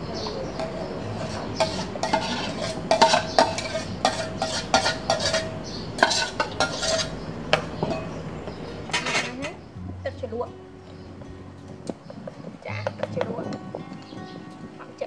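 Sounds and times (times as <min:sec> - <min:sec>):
metal utensil scraping metal pot: 0:00.2 - 0:08.2, 0:08.8 - 0:09.6.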